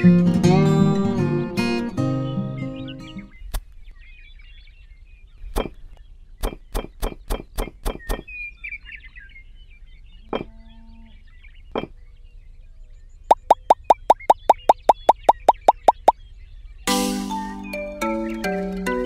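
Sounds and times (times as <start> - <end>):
faint bird chirps: 2.8 - 16.8.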